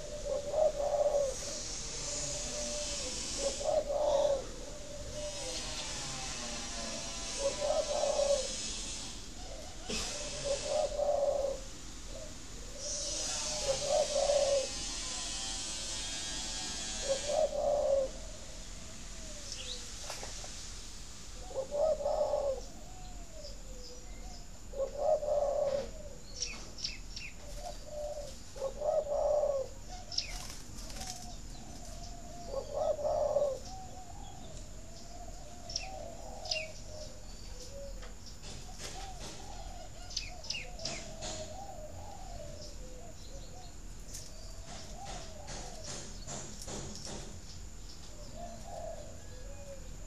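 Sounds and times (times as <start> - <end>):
doves cooing: 0.0 - 19.9, 21.4 - 26.7, 27.4 - 46.8, 48.1 - 50.0
small birds chirping: 19.3 - 19.9, 21.4 - 49.9.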